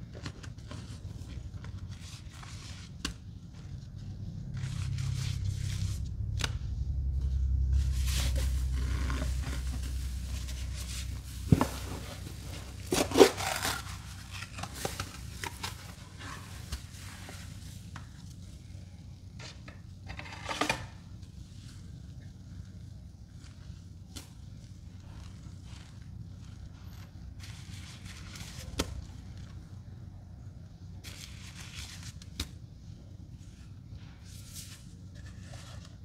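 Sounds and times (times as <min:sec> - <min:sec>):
sponge scraping and crinkling: 0:00.1 - 0:06.1, 0:07.8 - 0:18.6, 0:20.1 - 0:29.6, 0:33.4 - 0:36.0
low rumble: 0:04.0 - 0:11.6.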